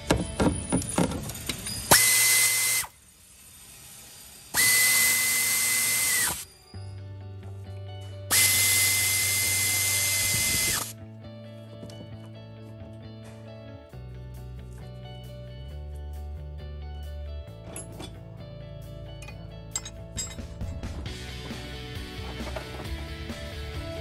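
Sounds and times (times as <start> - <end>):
power drill whine: 0.4 - 6.9, 8.3 - 10.9.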